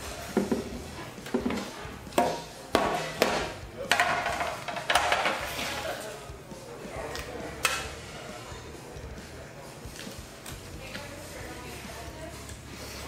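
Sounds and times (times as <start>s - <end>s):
dishes and utensils clattering: 0.2s - 6.1s.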